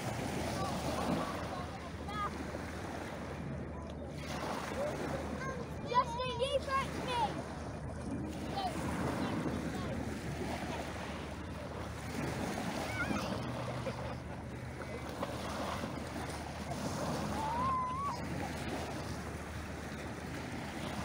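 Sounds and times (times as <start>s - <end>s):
waves washing onto shingle: 0.0s - 21.0s.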